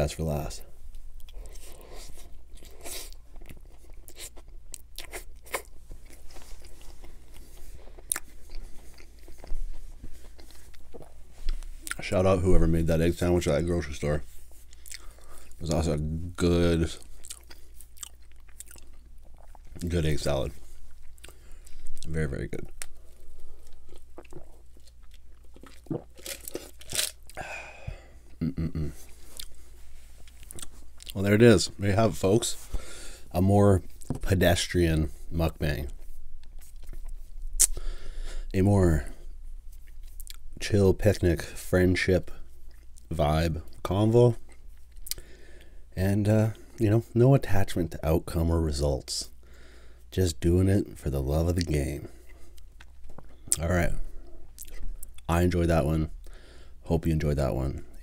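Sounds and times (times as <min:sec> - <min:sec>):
chewing sandwich: 0:01.1 - 0:12.1, 0:14.6 - 0:15.6, 0:16.9 - 0:20.0, 0:20.6 - 0:31.2, 0:39.6 - 0:40.6, 0:51.6 - 0:55.3
food wrapper crinkling: 0:24.3 - 0:27.4
sharp mouth clicks: 0:37.6 - 0:37.8.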